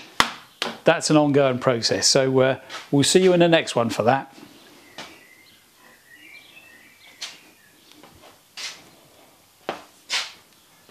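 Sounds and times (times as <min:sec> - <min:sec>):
faint bird chirps: 0:04.4 - 0:08.0.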